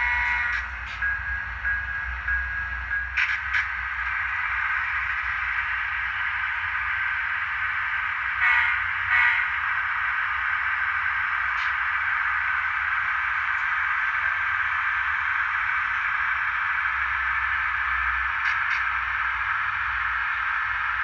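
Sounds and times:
loud pitched horn blasts: 0.0s - 0.7s, 8.4s - 9.6s
model locomotive whirring: 0.0s - 21.0s.

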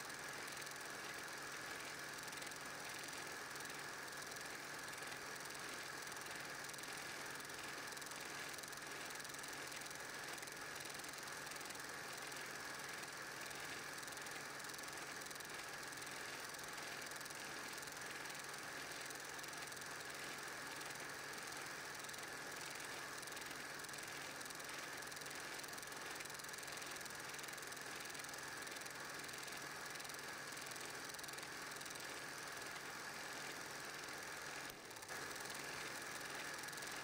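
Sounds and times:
film projector running: 0.0s - 37.0s.

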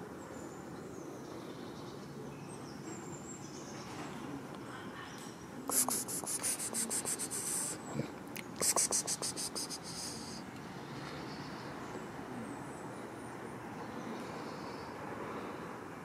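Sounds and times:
insect buzzing: 5.7s - 7.8s, 8.6s - 10.4s.

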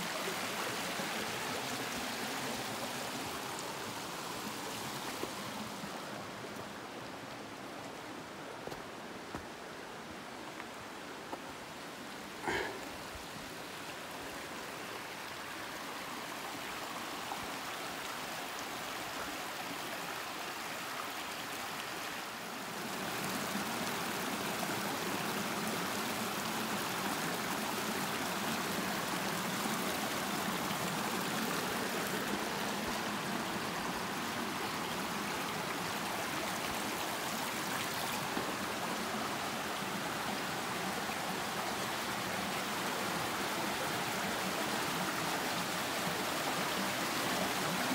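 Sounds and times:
stream trickling over stones: 0.0s - 47.9s.

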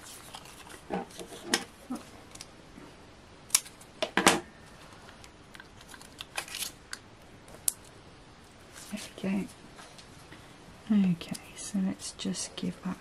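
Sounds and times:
paper rustling: 0.0s - 1.4s.

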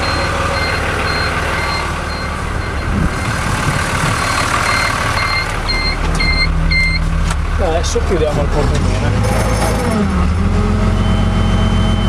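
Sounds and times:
high electronic warning beep: 0.0s - 7.0s
tractor diesel engine running: 0.0s - 12.0s.

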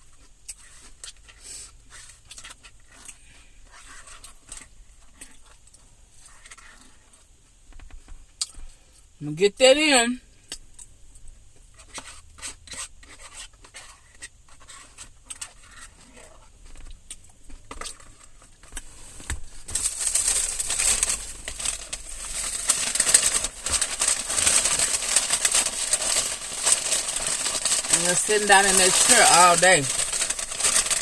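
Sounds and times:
paper wrapper rustling and crinkling: 17.5s - 31.0s.

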